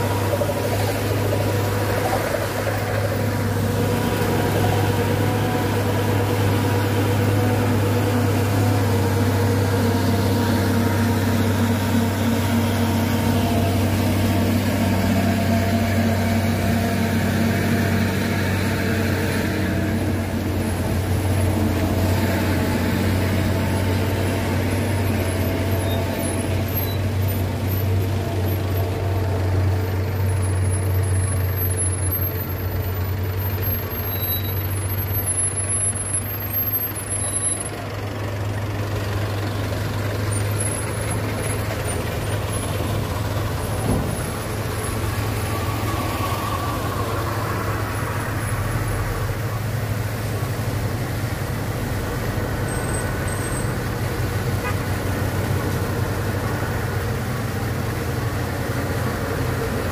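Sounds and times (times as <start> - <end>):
diesel truck engines droning: 0.0 - 59.9
tyres hissing on wet road: 0.0 - 59.9.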